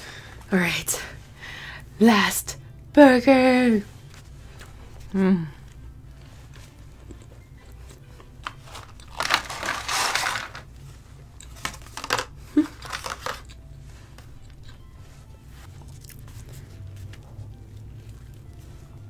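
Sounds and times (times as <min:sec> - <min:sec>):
paper carton crinkling: 0:08.4 - 0:10.8, 0:11.5 - 0:13.6.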